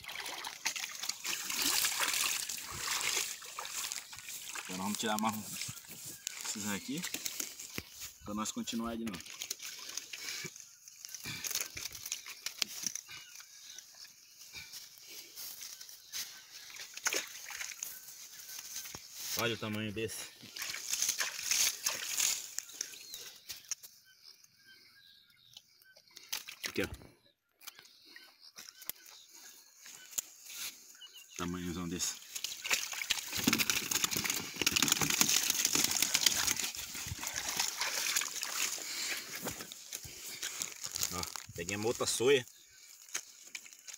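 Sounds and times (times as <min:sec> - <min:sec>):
water splashing: 0:00.0 - 0:07.6, 0:16.7 - 0:18.4, 0:32.0 - 0:39.5
wet net mesh rustling: 0:00.0 - 0:08.0, 0:32.2 - 0:41.5.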